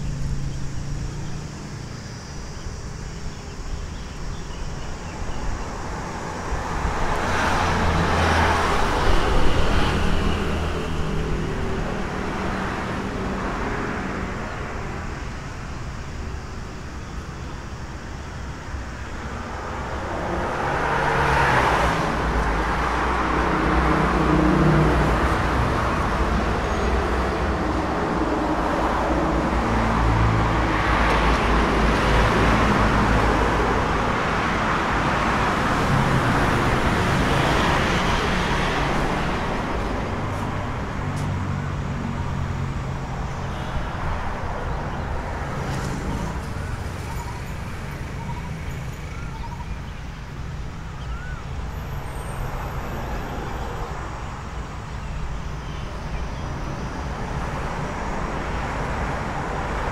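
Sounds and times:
road traffic rumble: 0:00.0 - 0:59.9.

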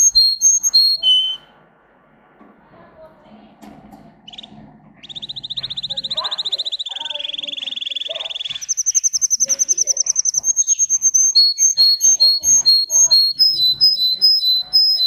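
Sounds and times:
canary singing trills: 0:00.0 - 0:01.5, 0:04.2 - 0:15.0.

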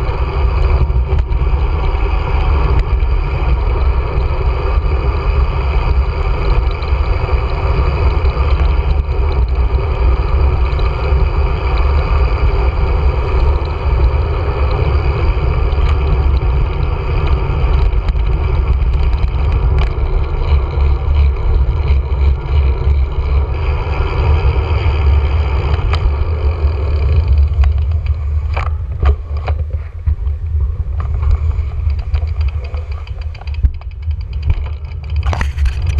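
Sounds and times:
bike tyre noise: 0:00.0 - 0:35.9
wind buffeting microphone: 0:00.0 - 0:35.9
sharp clicks: 0:27.0 - 0:35.9.

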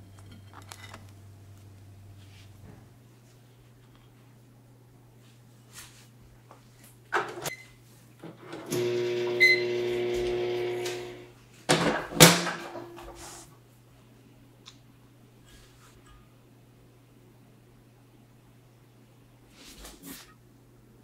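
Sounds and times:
microwave humming: 0:08.2 - 0:13.1
microwave beep: 0:08.7 - 0:11.2.

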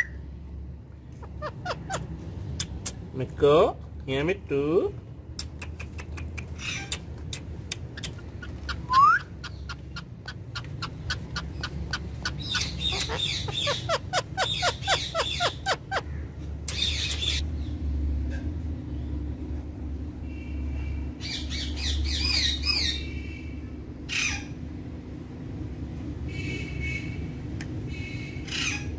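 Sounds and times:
parakeet squawk: 0:01.1 - 0:02.8, 0:06.6 - 0:07.1, 0:07.8 - 0:17.4, 0:24.0 - 0:24.6, 0:27.9 - 0:28.9
parakeet chattering clicks: 0:05.4 - 0:15.6
parakeet rising whistle: 0:08.8 - 0:09.3.

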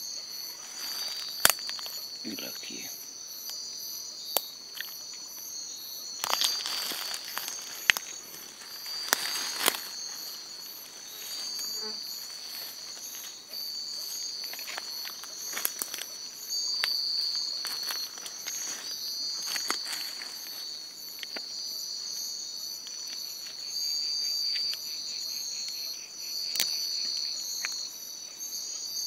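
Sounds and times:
high insect chirp pulsing: 0:00.0 - 0:29.0
night insects chirring: 0:00.0 - 0:29.0
twigs snapping: 0:01.0 - 0:02.0, 0:06.2 - 0:10.0
leaf litter rustling: 0:06.2 - 0:13.4.

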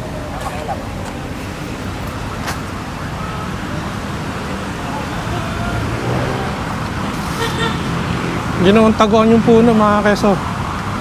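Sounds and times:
people talking: 0:00.0 - 0:01.3, 0:03.2 - 0:06.7, 0:08.6 - 0:10.4
road traffic rumble: 0:00.0 - 0:11.0.

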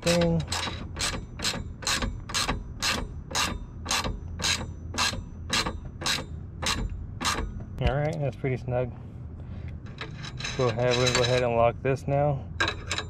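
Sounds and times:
ratchet wrench clicking: 0:00.0 - 0:07.5.

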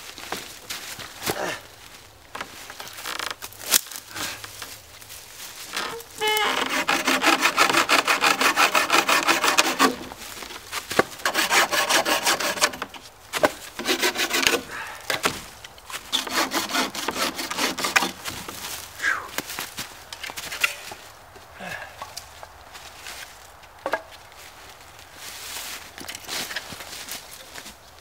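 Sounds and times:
hand saw cutting dry branch: 0:05.9 - 0:19.2.

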